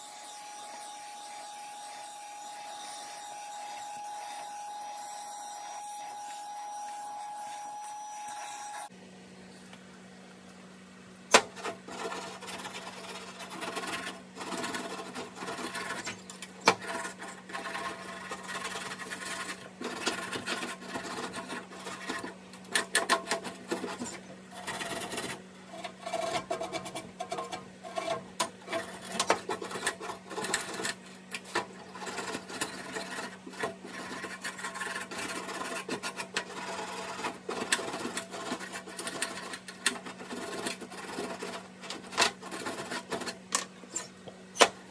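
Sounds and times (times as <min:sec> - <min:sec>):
stiff brush scrubbing metal: 0:11.3 - 0:44.2.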